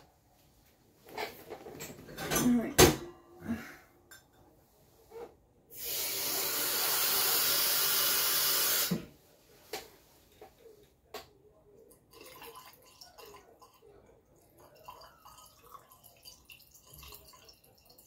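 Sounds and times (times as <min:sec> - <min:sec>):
water tap running: 0:05.8 - 0:08.9.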